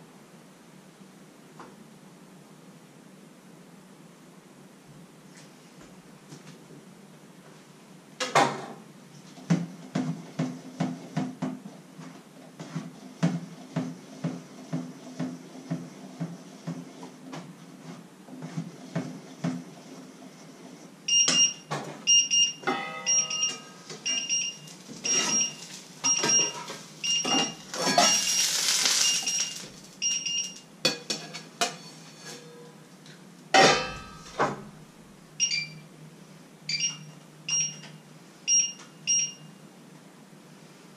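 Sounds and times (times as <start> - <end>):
smoke alarm beeping: 21.1 - 30.7, 35.4 - 35.8, 36.7 - 37.9, 38.5 - 39.5
kitchen utensils clattering: 22.7 - 32.7, 33.6 - 34.4.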